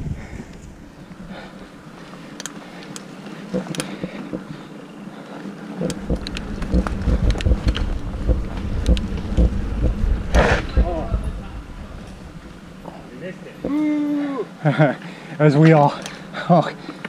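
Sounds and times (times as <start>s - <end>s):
bike light clicks and rattles: 2.3s - 4.5s, 5.8s - 10.0s
bike rumbling over rough ground: 5.6s - 13.5s.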